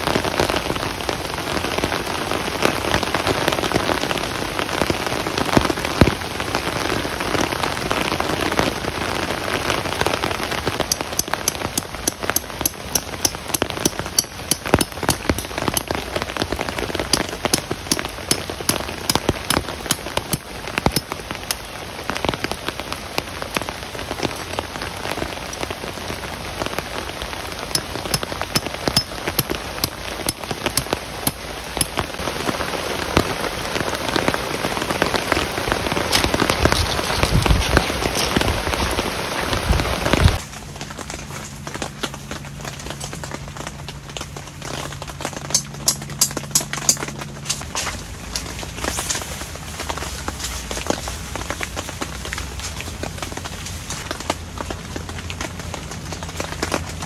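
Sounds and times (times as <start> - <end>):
heavy rain falling: 0.0 - 57.0
raindrops ticking close by: 0.0 - 57.0.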